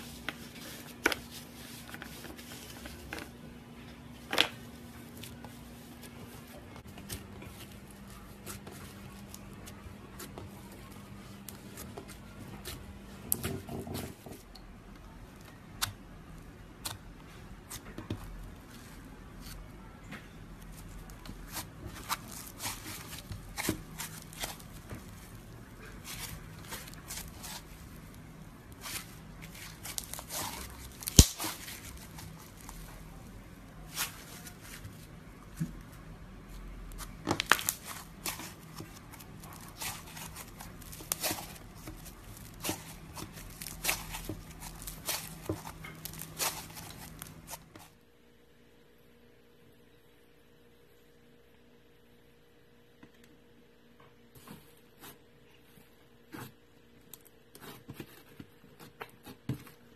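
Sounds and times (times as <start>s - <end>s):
foam bead slime crackling: 20.6s - 35.1s, 36.9s - 47.7s.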